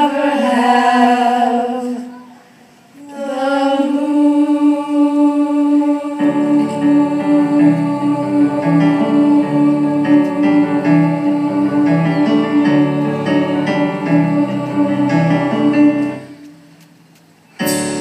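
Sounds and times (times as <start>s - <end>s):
keyboard and guitar band playing: 17.6s - 18.0s.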